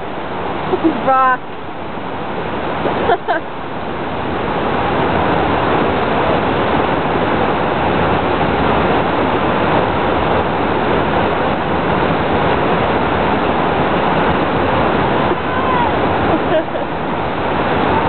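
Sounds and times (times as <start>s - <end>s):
river water pouring over dam: 0.0s - 18.0s.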